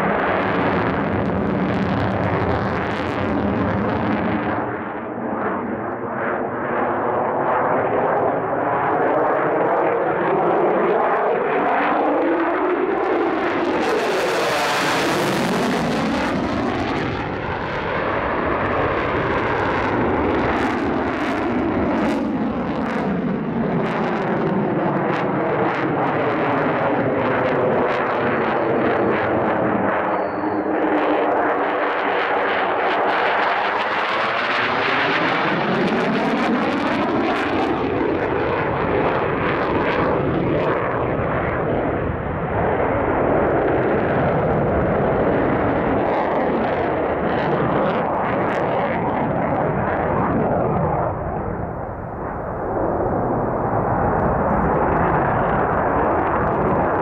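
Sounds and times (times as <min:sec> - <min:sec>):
jet engine running loud: 0:00.0 - 0:57.0.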